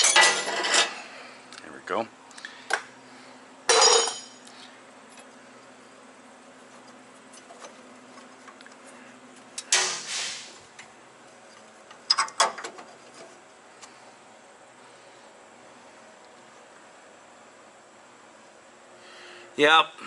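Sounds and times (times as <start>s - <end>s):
metal tools clinking: 3.7s - 4.4s.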